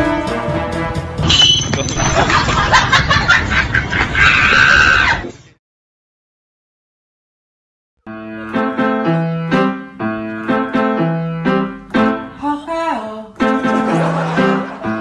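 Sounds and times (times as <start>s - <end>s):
keyboard music over beat: 8.0s - 12.5s, 13.2s - 15.0s.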